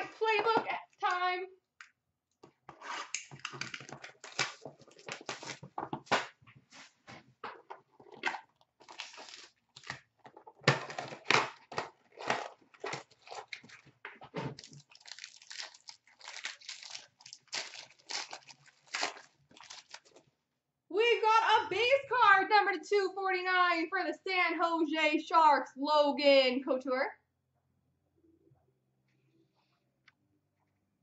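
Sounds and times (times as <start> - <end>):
plastic and foil wrappers crinkling: 2.8 - 6.1, 8.0 - 20.3.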